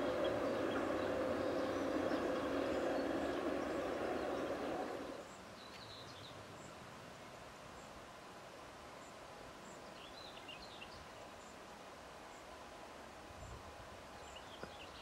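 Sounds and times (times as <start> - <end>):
steady noise: 0.0 - 5.3
bird chirps: 0.0 - 6.3
faint outdoor background: 0.0 - 15.0.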